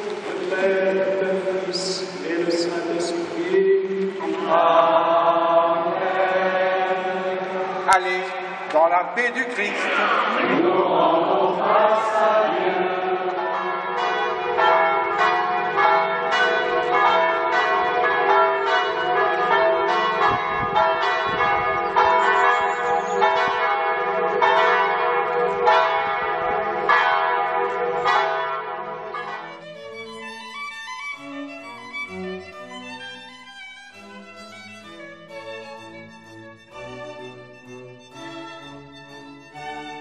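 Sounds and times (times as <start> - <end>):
church bells ringing: 0.0 - 9.8, 11.6 - 40.0
singing: 3.5 - 8.0, 9.9 - 13.4.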